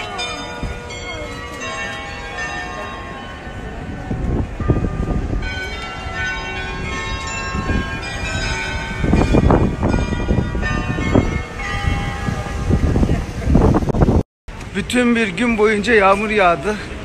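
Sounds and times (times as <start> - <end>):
church bells ringing: 0.0 - 13.4
street noise: 0.0 - 17.0.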